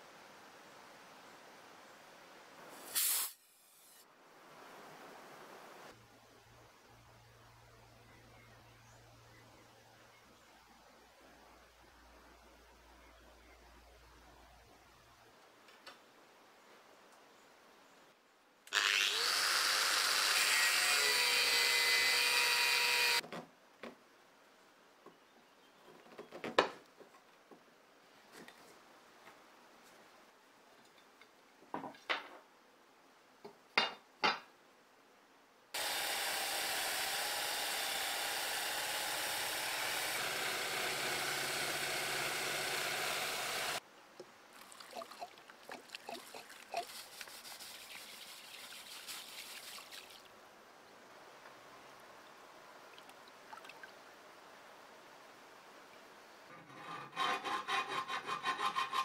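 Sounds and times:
wire wheel drill whirring on metal: 0:18.7 - 0:23.2, 0:35.8 - 0:43.8
faint water sounds: 0:43.8 - 0:56.6
scratchy rubbing: 0:56.5 - 0:59.0.

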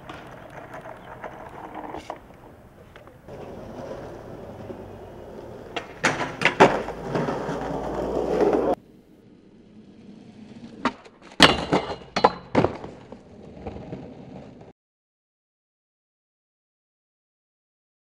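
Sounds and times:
skateboard clacks: 0:00.0 - 0:08.8, 0:10.8 - 0:14.7
skateboard trucks grinding rail: 0:00.0 - 0:14.7
skateboard wheels rolling: 0:00.0 - 0:14.7.

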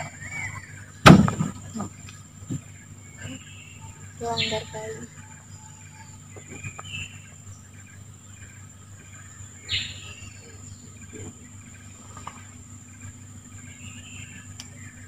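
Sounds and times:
high-pitched insect drone: 0:00.0 - 0:01.0, 0:01.7 - 0:15.0
short bird calls: 0:00.0 - 0:15.0.

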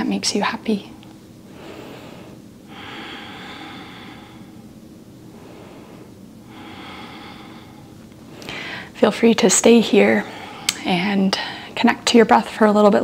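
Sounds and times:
person breathing slowly: 0:01.5 - 0:09.0, 0:10.1 - 0:10.8.

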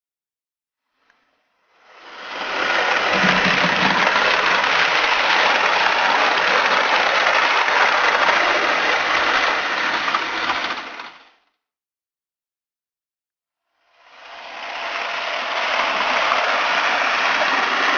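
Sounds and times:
model train running past: 0:01.7 - 0:11.4, 0:14.0 - 0:17.9.

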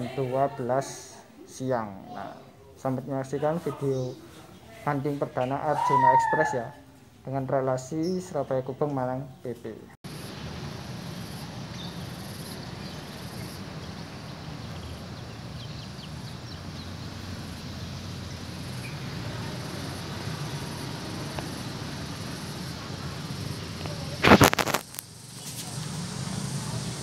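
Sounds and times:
insects chirping: 0:10.1 - 0:27.0
low outdoor rumble: 0:10.1 - 0:27.0.

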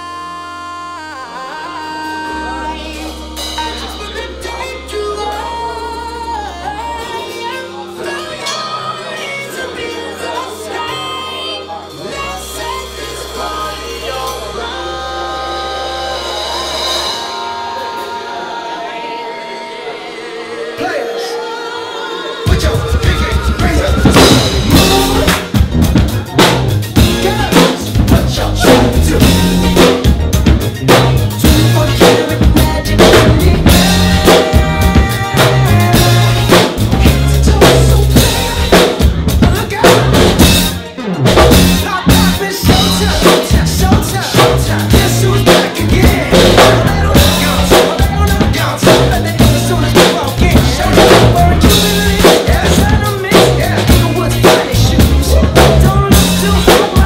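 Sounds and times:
drum kit beat: 0:01.6 - 0:19.3, 0:22.2 - 0:57.0
loud dance music: 0:02.6 - 0:57.0
stepping bass line: 0:22.5 - 0:57.0.

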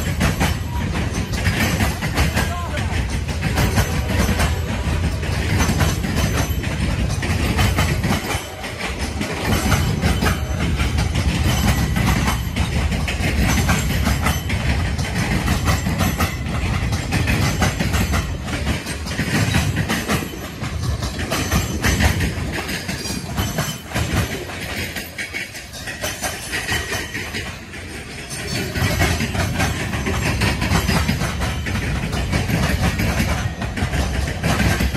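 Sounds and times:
steel wheels rumbling on rail: 0:00.0 - 0:34.9
wheels clicking over rail joints: 0:00.0 - 0:34.9.

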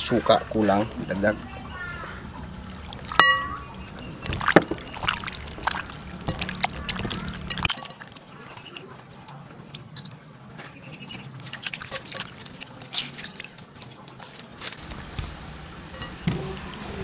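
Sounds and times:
wet squelching of fish by hand: 0:01.8 - 0:09.0, 0:11.1 - 0:15.4.

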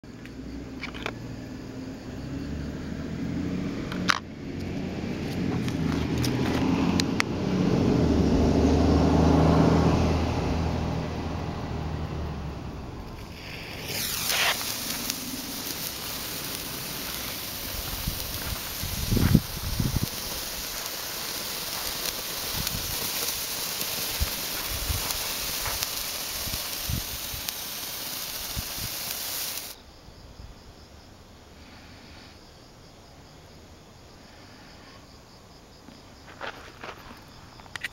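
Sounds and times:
vehicle engine running: 0:01.8 - 0:27.8
sparkler hissing: 0:04.6 - 0:08.0, 0:10.6 - 0:29.8.

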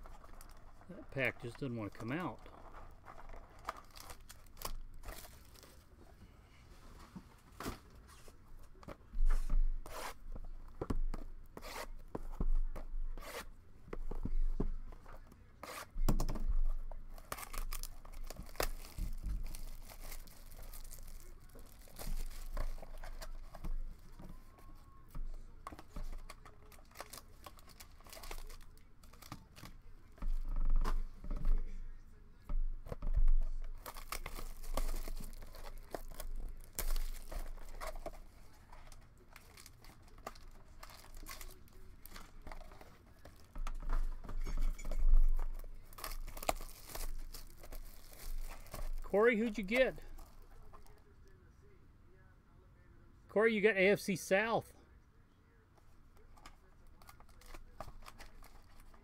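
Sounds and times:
foil wrapping crinkling and tearing: 0:00.0 - 0:05.8, 0:17.1 - 0:23.7, 0:26.1 - 0:29.7, 0:33.6 - 0:51.0, 0:56.9 - 0:59.0.

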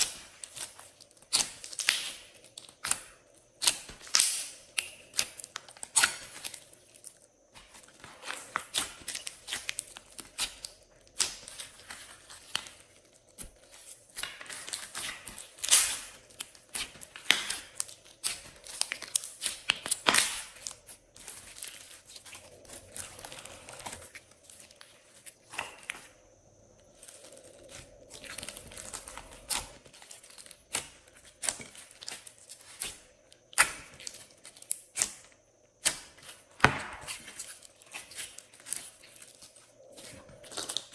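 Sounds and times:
slime crackling and popping: 0:00.0 - 0:07.2, 0:07.8 - 0:26.1, 0:26.8 - 0:35.2, 0:35.8 - 0:40.9.

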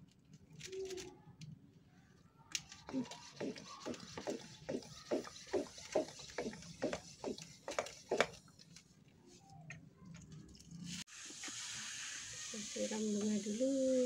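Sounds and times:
hand pump of sprayer bottle: 0:02.6 - 0:08.4, 0:11.1 - 0:13.6.

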